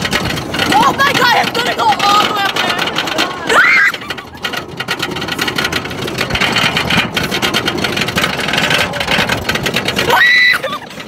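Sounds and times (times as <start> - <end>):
roller coaster rattling on track: 0.0 - 11.0
girl screaming: 10.1 - 10.8.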